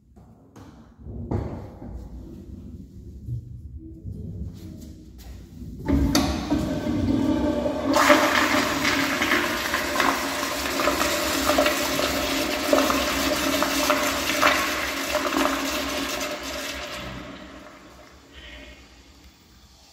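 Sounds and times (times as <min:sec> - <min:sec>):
toilet flushing: 0:05.8 - 0:19.0.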